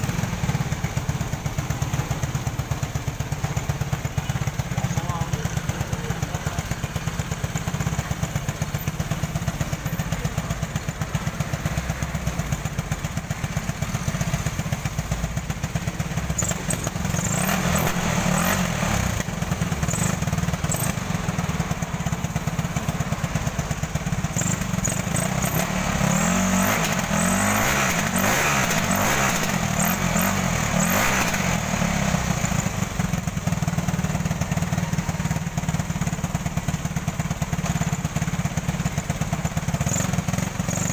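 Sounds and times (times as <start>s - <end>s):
atv engine revving: 12.7s - 36.6s, 37.2s - 40.9s.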